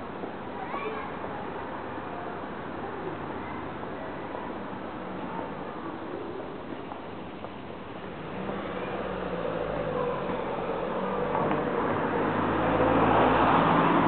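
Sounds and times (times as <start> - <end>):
street traffic hum: 0.0 - 14.0
car approaching: 6.1 - 14.0.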